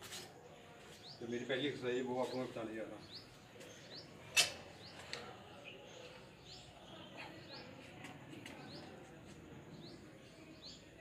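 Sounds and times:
bird chirping: 0.8 - 7.9.

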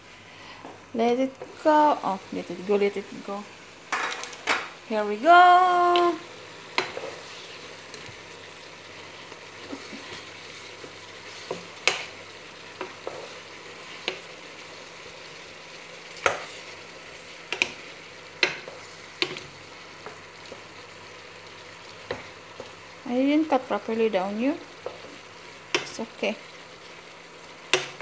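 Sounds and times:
food sizzling in a frying pan: 0.0 - 28.0
spatula knocking against pan: 18.4 - 19.4.

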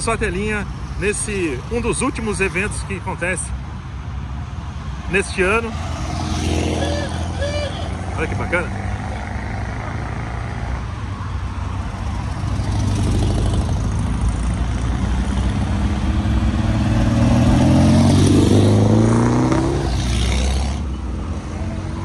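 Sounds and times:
cars driving past: 0.0 - 22.0
car engine accelerating: 12.2 - 20.9.

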